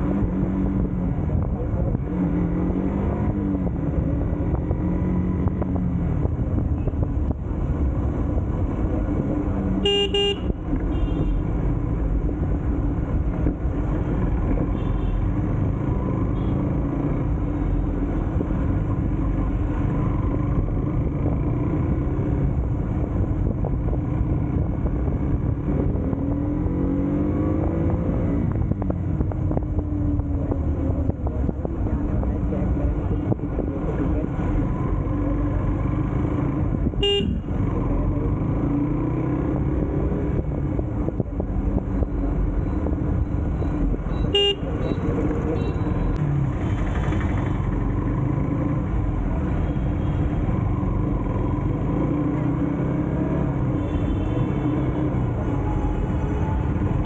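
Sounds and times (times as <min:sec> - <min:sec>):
vehicle horn honking: 0:09.8 - 0:11.4, 0:37.0 - 0:37.4, 0:44.2 - 0:45.0.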